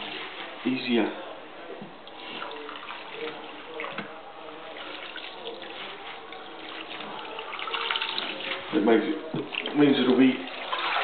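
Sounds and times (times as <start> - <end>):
hands rubbing leaves in water: 4.7 - 11.0
water sloshing in sink: 4.7 - 11.0
small splashes: 9.4 - 11.0.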